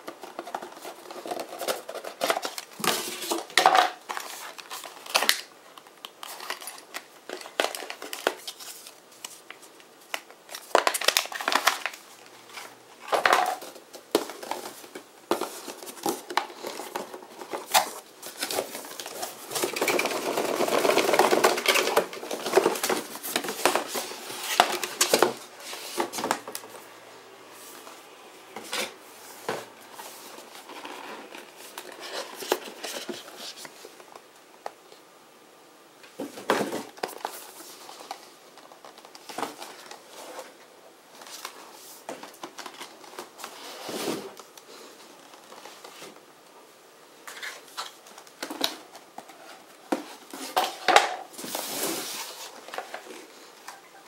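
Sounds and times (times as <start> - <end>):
paper packaging rustling and crinkling: 0.0 - 26.9, 28.6 - 35.0, 36.0 - 46.3, 47.2 - 54.0
cardboard boxes knocking and clicking: 13.2 - 25.4.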